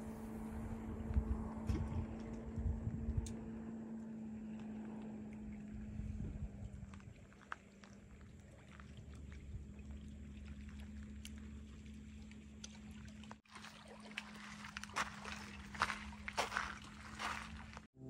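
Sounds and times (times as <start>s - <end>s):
wind rumble on microphone: 0.0s - 3.8s, 4.4s - 10.1s
steady low hum: 0.0s - 17.9s.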